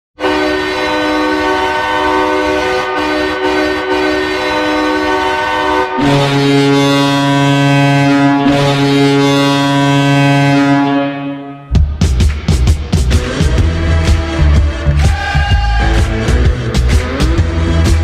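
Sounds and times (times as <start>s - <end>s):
hockey goal horn blowing: 0.2s - 11.8s.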